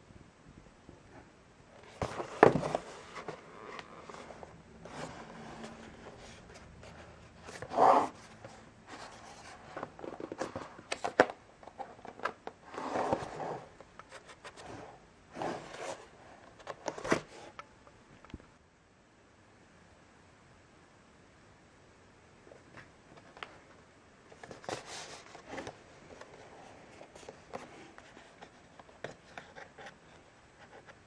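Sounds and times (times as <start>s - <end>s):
cardboard scraping and rustling: 1.8s - 17.6s, 24.4s - 31.0s.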